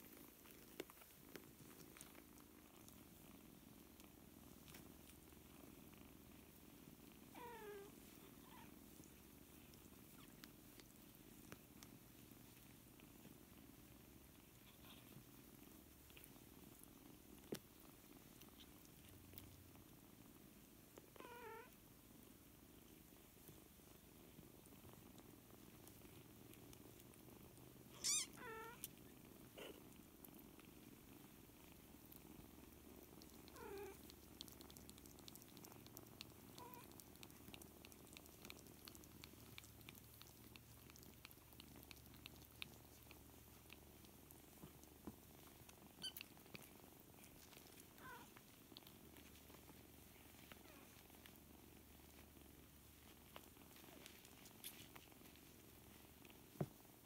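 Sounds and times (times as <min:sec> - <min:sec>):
cats purring: 0:00.0 - 0:57.0
kittens squeaking: 0:27.9 - 0:28.8, 0:46.0 - 0:46.3.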